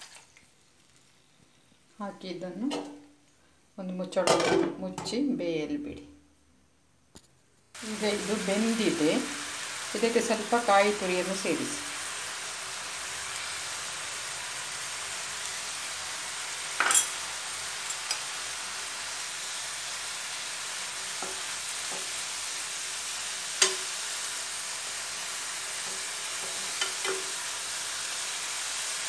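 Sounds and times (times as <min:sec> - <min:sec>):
food sizzling in a frying pan: 0:07.8 - 0:29.0
spoon clinking and scraping pan: 0:16.8 - 0:17.2, 0:17.8 - 0:18.3, 0:23.6 - 0:24.0, 0:25.8 - 0:27.4.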